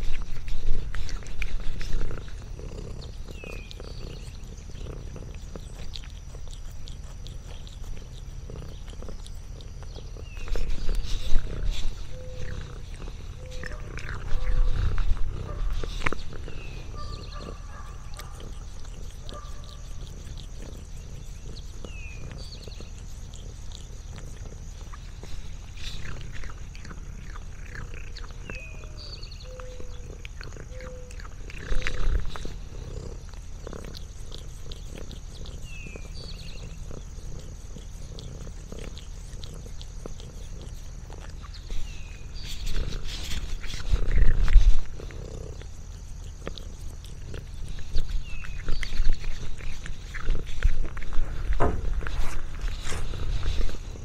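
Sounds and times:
cat purring: 0.0 - 54.0
thump: 51.6 - 51.9.

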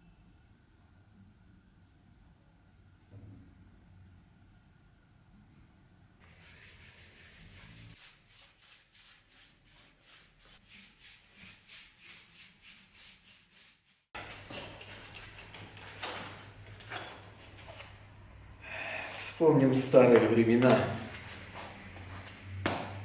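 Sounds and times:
paintbrush rubbing on wood: 6.2 - 14.1.

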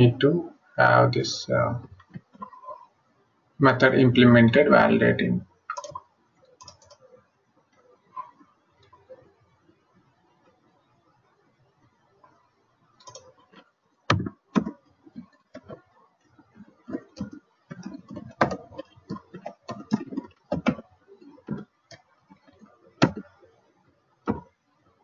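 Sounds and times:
typing on computer keyboard: 5.7 - 7.1, 13.0 - 15.8, 16.9 - 23.4.

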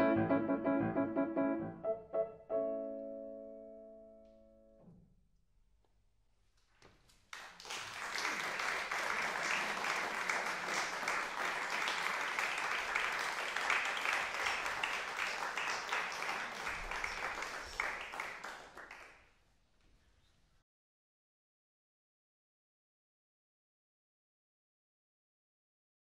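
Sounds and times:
audience applauding: 7.3 - 19.3.

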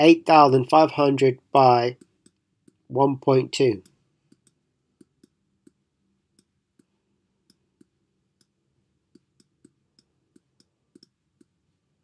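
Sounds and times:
stylus tapping on tablet: 3.8 - 11.6.

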